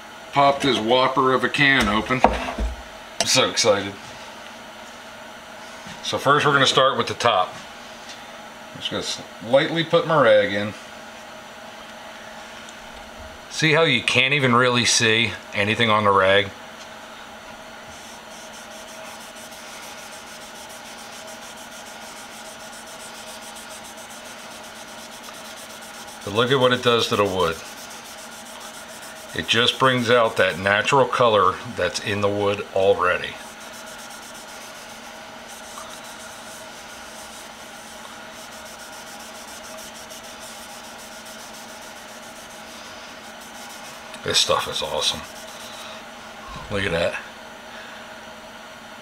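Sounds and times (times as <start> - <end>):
rag scrubbing wood: 17.9 - 30.8, 33.3 - 45.8.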